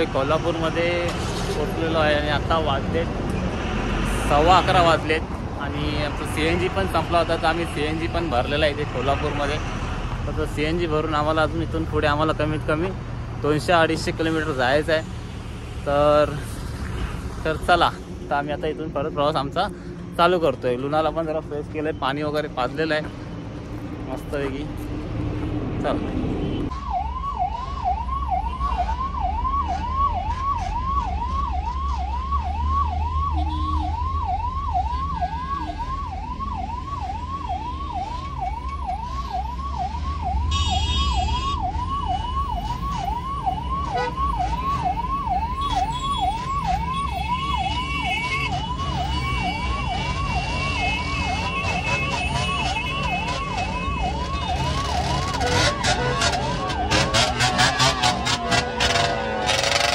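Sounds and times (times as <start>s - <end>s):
engine and road rumble: 0.0s - 59.9s
ambulance siren yelping: 26.5s - 59.9s.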